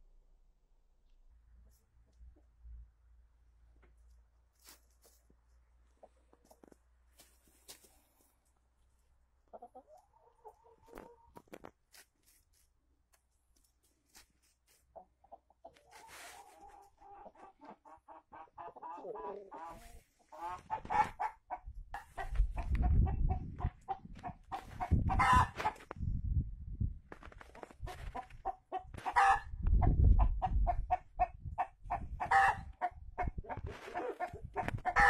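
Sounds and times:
chickens clucking: 3.8s - 8.3s, 9.3s - 11.6s, 14.7s - 25.9s, 27.5s - 35.0s
low rumble on microphone: 21.7s - 27.1s.

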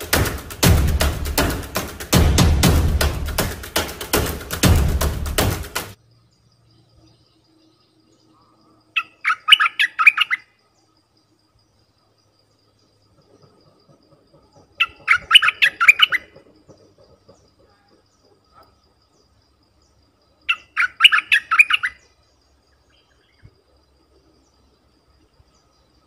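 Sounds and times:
bird singing: 6.0s - 26.0s.

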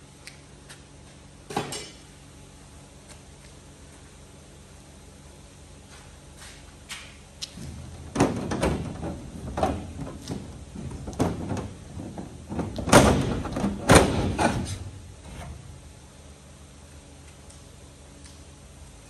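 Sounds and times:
knocks and clunks on metal: 7.9s - 14.8s
loud bangs on metal: 12.8s - 14.7s.

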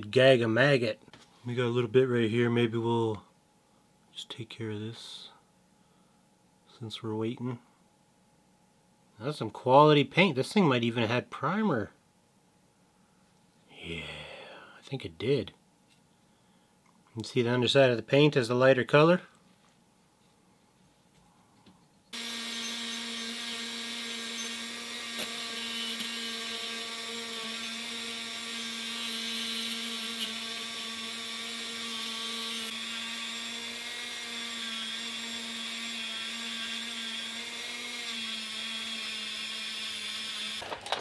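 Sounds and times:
rotary tool whining on metal: 22.1s - 40.9s.

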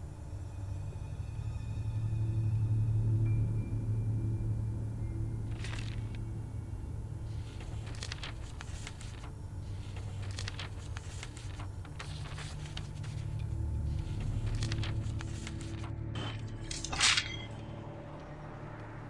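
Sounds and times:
low steady hum: 0.0s - 19.0s
paper rustling: 5.5s - 6.2s, 7.3s - 17.4s.

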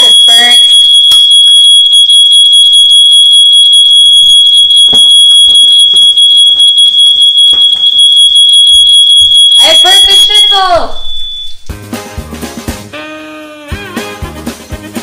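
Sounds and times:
smoke alarm tone: 0.0s - 11.7s.

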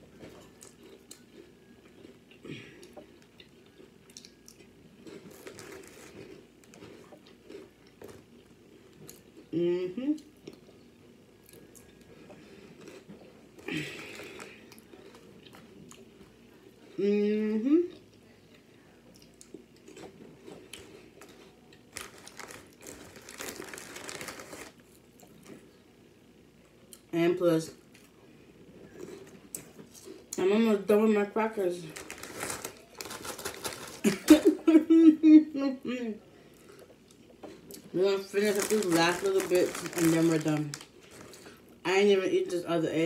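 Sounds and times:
person chewing food: 0.0s - 9.5s, 10.2s - 17.0s, 17.9s - 25.6s, 27.9s - 30.4s, 38.6s - 41.8s
plastic snack bag crinkling: 5.0s - 8.3s, 13.7s - 15.6s, 21.2s - 25.0s, 31.6s - 34.6s, 37.9s - 41.7s.

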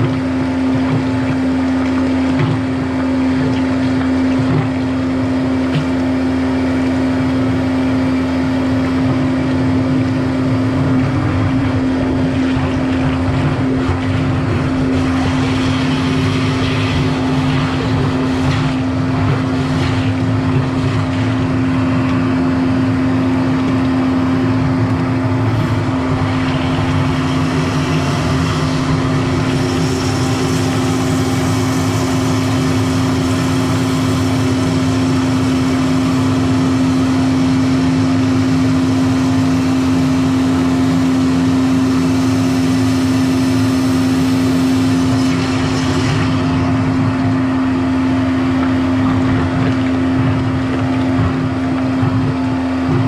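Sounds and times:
drain-cleaning machine motor drone: 0.0s - 53.0s.

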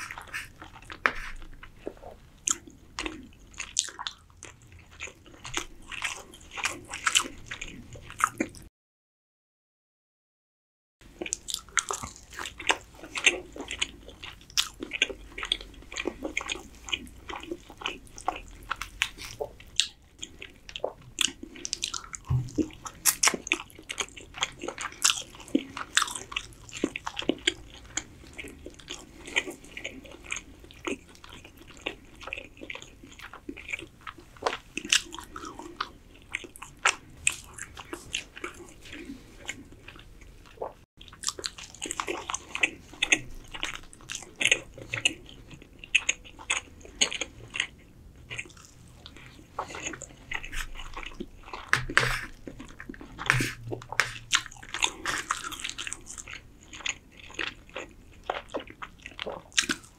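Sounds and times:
person chewing food: 0.0s - 8.7s, 11.0s - 59.9s.

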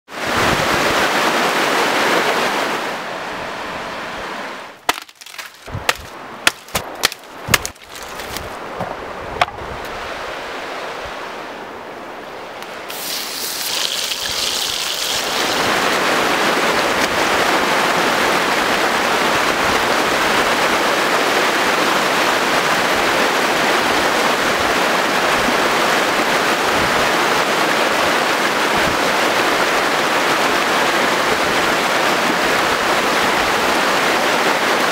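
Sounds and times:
sharp crackles and pops: 4.8s - 8.6s, 12.9s - 15.6s.

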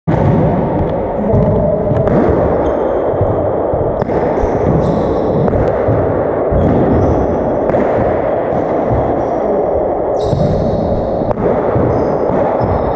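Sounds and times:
sneakers squeaking on floor: 4.0s - 5.6s, 6.5s - 7.4s, 10.2s - 11.1s, 11.7s - 12.9s.

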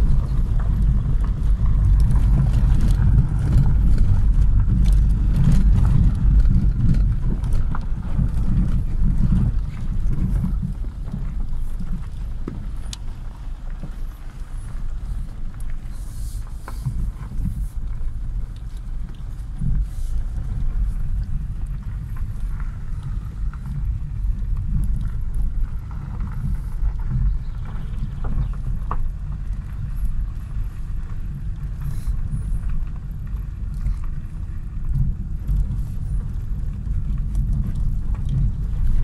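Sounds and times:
car driving on gravel: 0.0s - 39.0s.

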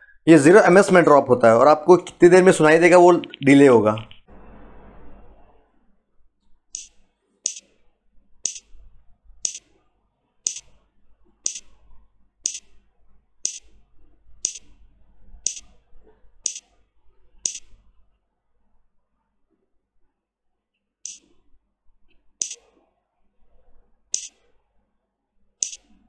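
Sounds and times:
click tone: 8.5s - 8.7s, 13.5s - 13.7s, 14.4s - 14.7s, 17.5s - 17.7s, 21.1s - 21.3s, 25.6s - 25.9s.

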